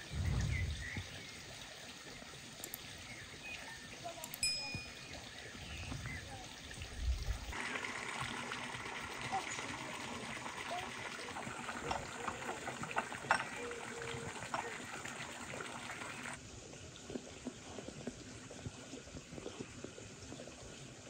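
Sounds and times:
water pouring into a pond: 0.0s - 21.0s
faint ticks: 2.6s - 2.9s.

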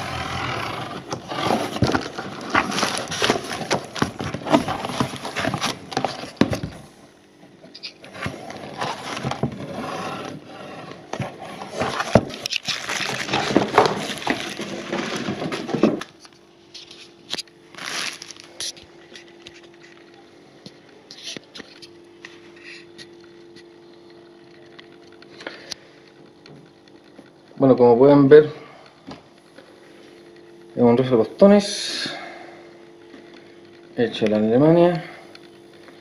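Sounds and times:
cardboard and paper rustling: 0.0s - 6.9s, 8.0s - 20.0s
plastic wrapping crinkling: 1.0s - 6.9s, 11.1s - 20.1s.

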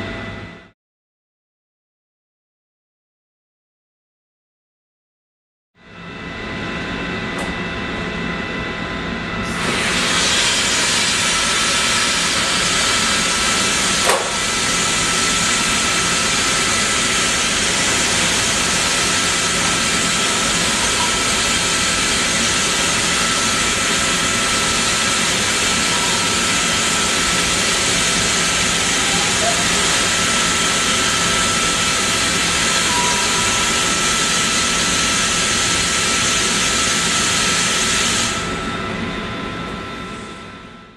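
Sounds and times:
compressed air hissing: 9.5s - 31.2s.

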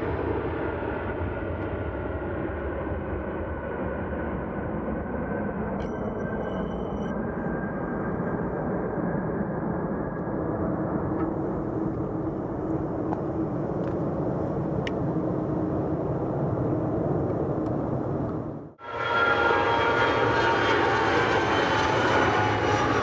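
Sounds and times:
jet engines rumbling: 0.0s - 23.0s
faint droning tone: 5.8s - 21.1s.

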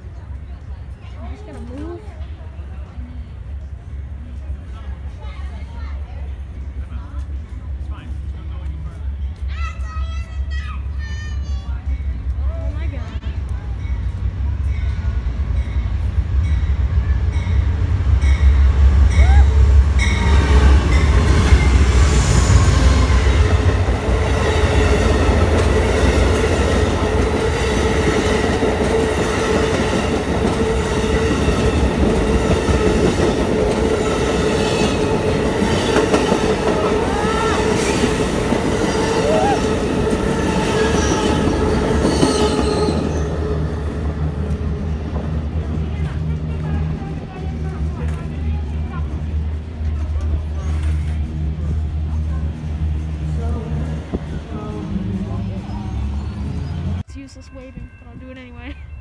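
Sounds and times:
diesel locomotive rumble: 0.0s - 59.0s
train wheel clatter: 19.2s - 58.8s.

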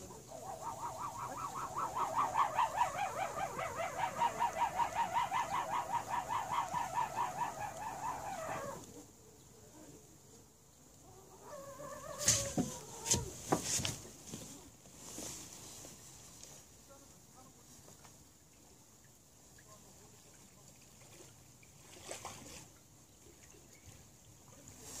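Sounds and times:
bird calling in rapid notes: 0.4s - 8.8s.

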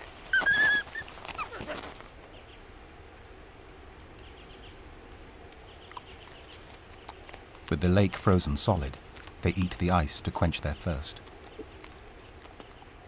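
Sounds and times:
wolf whimpering: 0.3s - 2.0s.

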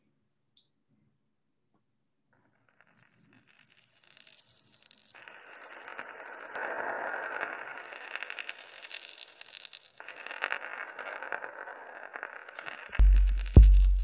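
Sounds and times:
hissing crackling noise: 4.1s - 14.0s.

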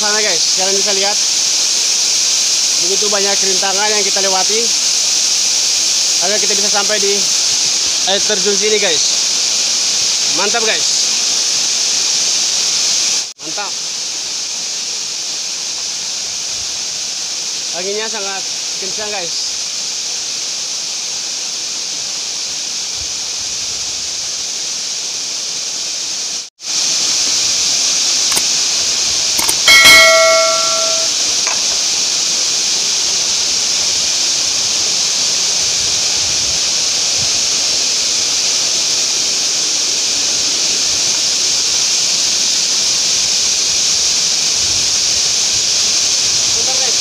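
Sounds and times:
bell-like chime: 29.4s - 31.6s.

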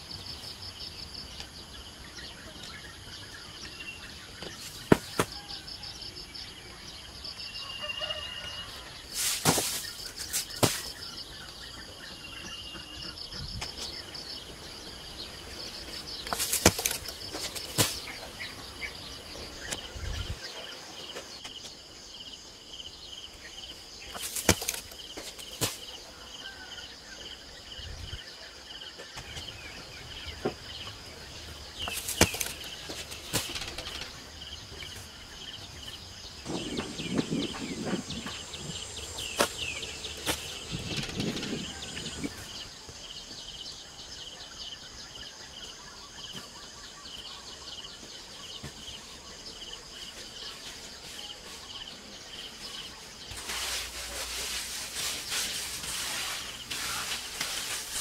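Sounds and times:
insects chirping: 0.0s - 58.0s
soil pouring into a pit: 9.1s - 10.9s, 53.3s - 58.0s.

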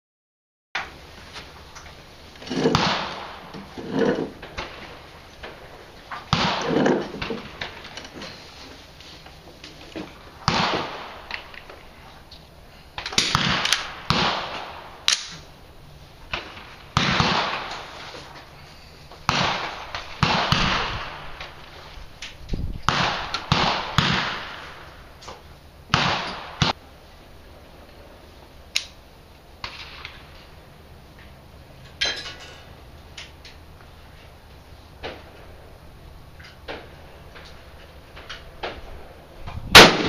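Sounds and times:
rifle shots echoing: 2.5s - 5.1s, 6.3s - 7.9s, 10.4s - 11.7s, 13.0s - 15.5s, 16.3s - 18.0s, 19.3s - 21.6s, 22.9s - 24.9s, 25.9s - 26.8s, 39.8s - 40.0s.

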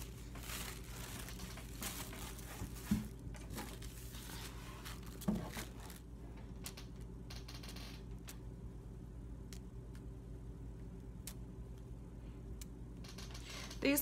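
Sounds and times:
tissue paper rustling: 0.0s - 6.1s.

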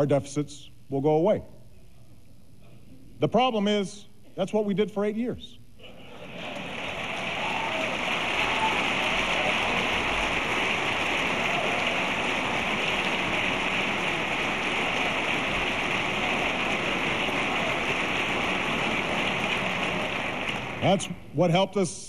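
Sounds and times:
large audience applauding: 5.9s - 21.1s.

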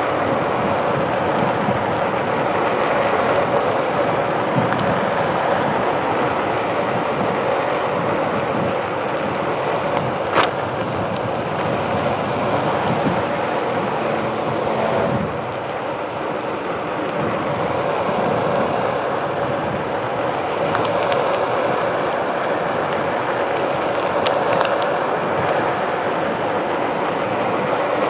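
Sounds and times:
electric board rolling on pavement: 0.0s - 28.0s
steady hum: 0.0s - 28.0s
wind buffeting microphone: 0.0s - 28.0s.

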